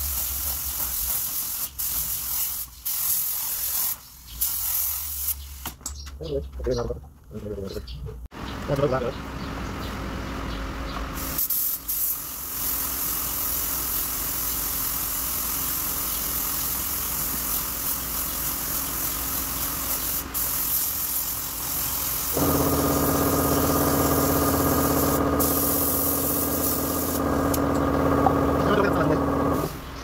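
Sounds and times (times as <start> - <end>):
spray gun hissing: 0.0 - 5.4, 11.2 - 29.8
steady machine hum: 22.4 - 29.7.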